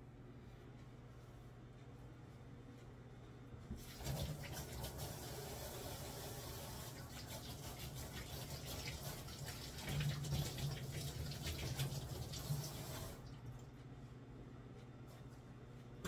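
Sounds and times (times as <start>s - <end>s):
microwave oven humming: 0.0s - 16.0s
tap water splashing into sink: 3.7s - 5.4s, 6.8s - 13.3s.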